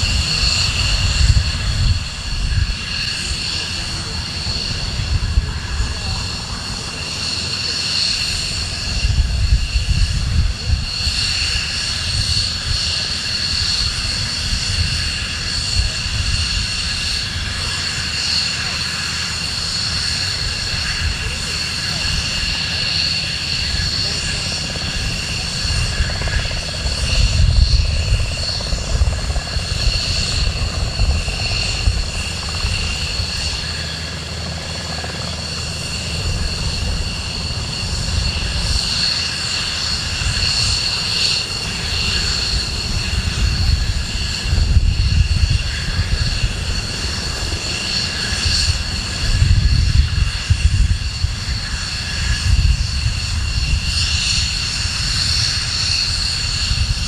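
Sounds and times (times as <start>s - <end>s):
helicopter turbine whine: 0.0s - 57.0s
helicopter rotor thudding: 19.7s - 44.8s.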